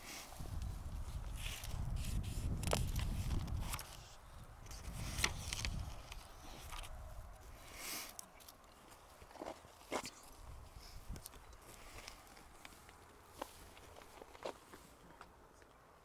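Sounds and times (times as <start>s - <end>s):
microphone rumble and rustling: 0.4s - 7.5s.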